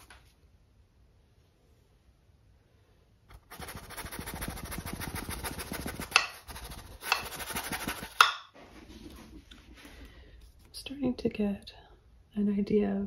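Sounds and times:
paintbrush scrubbing on canvas: 0:03.3 - 0:09.8.

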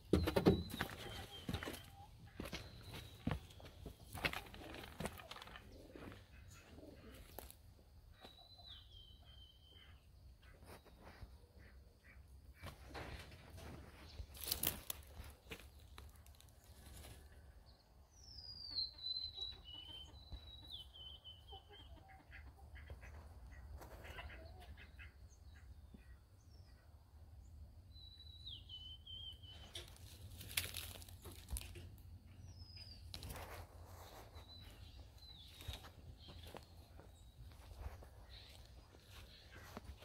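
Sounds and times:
sparrow singing: 0:00.0 - 0:04.1, 0:18.2 - 0:22.0, 0:28.0 - 0:40.0
rustling scuffling noises: 0:00.6 - 0:07.5, 0:29.8 - 0:32.0, 0:33.0 - 0:40.0.

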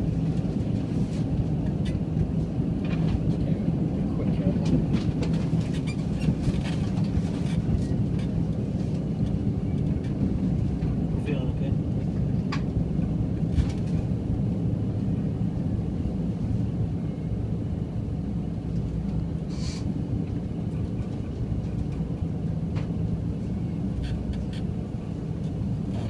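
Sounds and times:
train cabin rumble: 0:00.0 - 0:26.0
short hiss: 0:19.5 - 0:19.9.

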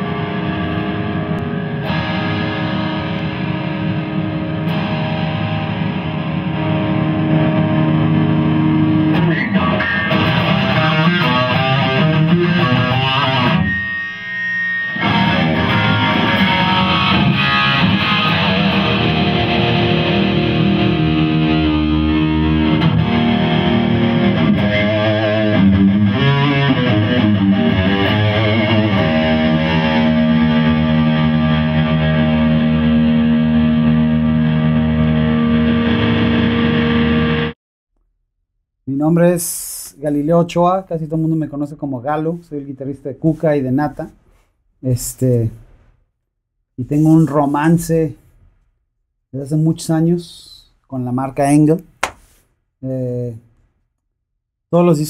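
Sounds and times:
distorted electric guitar: 0:00.0 - 0:37.6.

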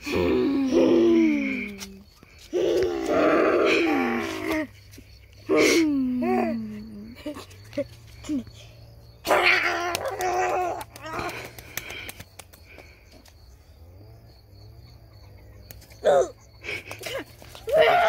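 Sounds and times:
boys making strained vocal noises: 0:00.0 - 0:04.8, 0:05.5 - 0:07.4, 0:09.3 - 0:11.6, 0:17.0 - 0:18.0.

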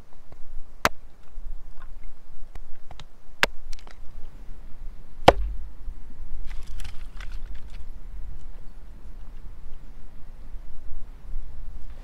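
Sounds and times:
hatchet splitting wood: 0:05.2 - 0:05.6.

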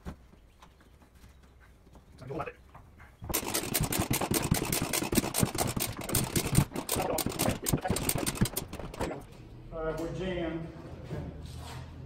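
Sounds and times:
impact driver hammering screw into wood: 0:03.3 - 0:09.2.

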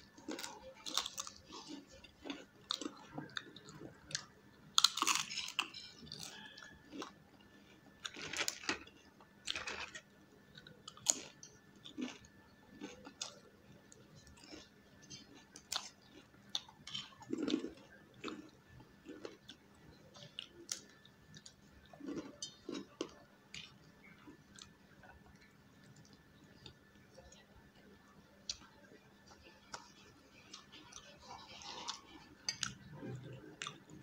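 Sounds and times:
chewing noodles: 0:00.0 - 0:27.4, 0:28.4 - 0:34.0
crisp fried snack crunching: 0:00.2 - 0:10.0, 0:10.9 - 0:13.5, 0:14.2 - 0:19.6.

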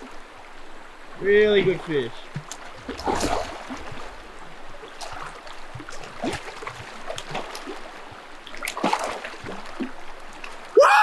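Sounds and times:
river stream rushing: 0:00.0 - 0:11.0
fish splashing at surface: 0:02.4 - 0:04.1.

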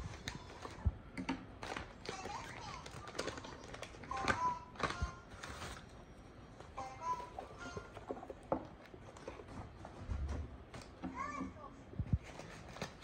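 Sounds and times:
paper bag crinkling: 0:01.6 - 0:06.0.

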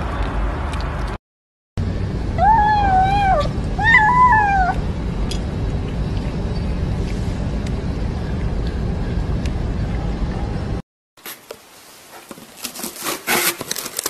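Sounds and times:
low background rumble: 0:01.8 - 0:10.8
kitten meowing: 0:02.4 - 0:04.8.

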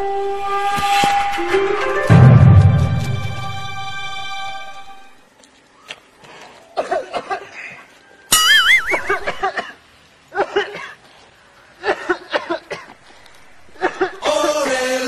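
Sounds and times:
wobbling comedy whistle effect: 0:08.3 - 0:09.3
bursts of laughter: 0:08.4 - 0:09.6.

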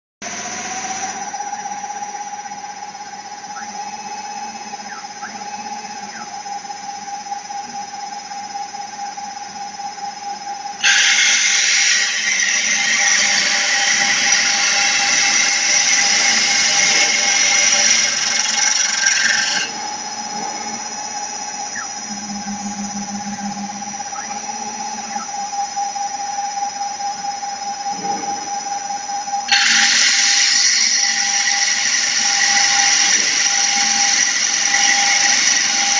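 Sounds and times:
spindle motor whine: 0:00.2 - 0:35.9
drill bit grinding stone: 0:10.8 - 0:25.3, 0:29.5 - 0:35.9.

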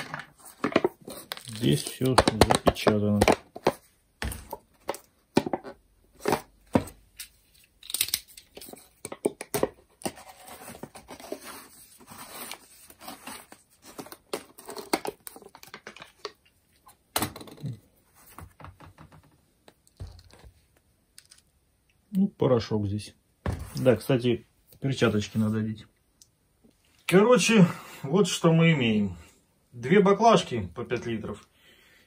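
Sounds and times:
foil crinkling and tearing: 0:01.2 - 0:02.1.

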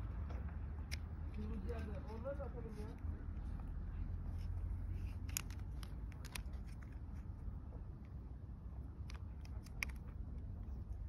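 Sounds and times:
steady low rumble: 0:00.0 - 0:11.0
small sharp plastic clicks: 0:00.8 - 0:02.1, 0:05.0 - 0:07.0, 0:09.0 - 0:10.5.

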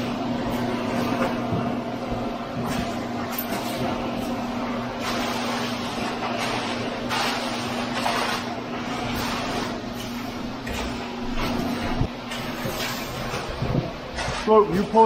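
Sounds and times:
concrete pump humming: 0:00.0 - 0:15.0
wet concrete gushing from hose: 0:05.0 - 0:11.5
rakes scraping through concrete: 0:05.0 - 0:13.5, 0:14.1 - 0:15.0.

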